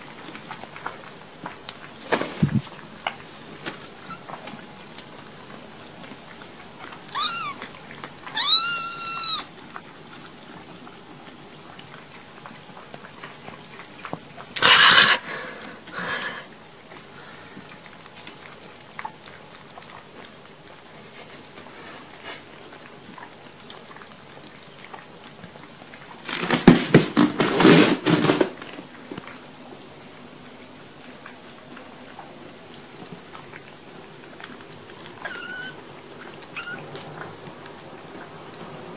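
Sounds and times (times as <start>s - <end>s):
kittens meowing: 7.1s - 7.7s, 8.3s - 9.5s, 35.2s - 35.8s, 36.5s - 36.8s.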